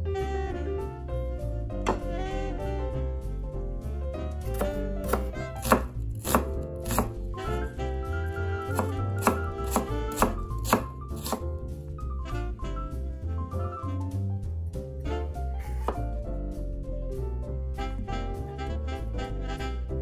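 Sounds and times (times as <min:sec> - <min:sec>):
jazz music with bass line: 0:00.0 - 0:20.0
knife chopping on wooden board: 0:01.9 - 0:02.1, 0:04.5 - 0:07.3, 0:08.7 - 0:11.5, 0:15.8 - 0:16.1.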